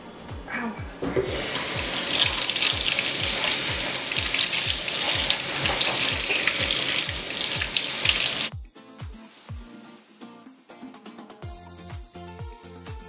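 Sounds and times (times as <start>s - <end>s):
faucet running into steel sink: 1.2s - 8.5s
sponge rinsed under water: 1.2s - 8.5s.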